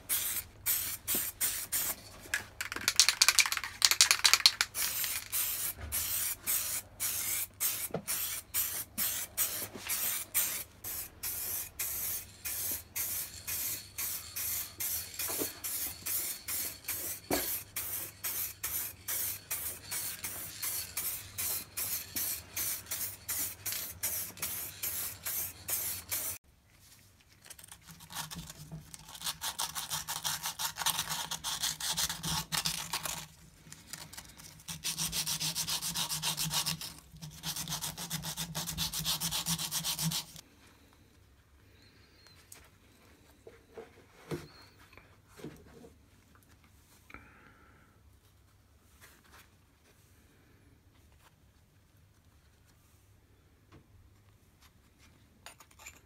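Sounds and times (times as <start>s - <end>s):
spray paint hissing: 0.0s - 2.0s, 2.6s - 26.4s.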